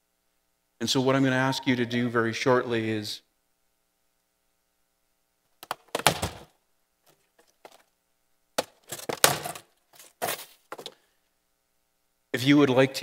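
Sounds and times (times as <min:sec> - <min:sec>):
cardboard boxes thumping and scraping: 0:05.9 - 0:06.5, 0:08.6 - 0:10.9.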